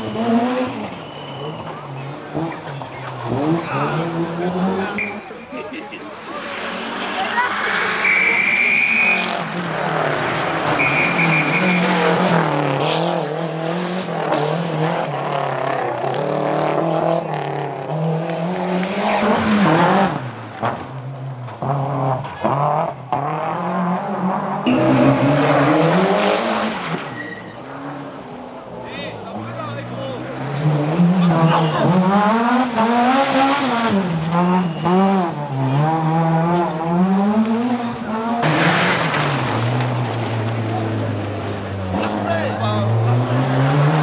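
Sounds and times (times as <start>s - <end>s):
car engine revving hard: 0.0s - 5.0s, 9.1s - 44.0s
tyre squeals: 10.7s - 12.1s, 27.0s - 27.7s.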